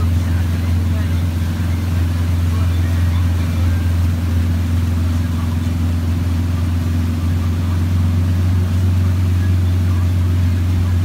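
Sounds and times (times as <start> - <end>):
vehicle engine droning: 0.0 - 11.0
water churning and washing: 0.0 - 11.0.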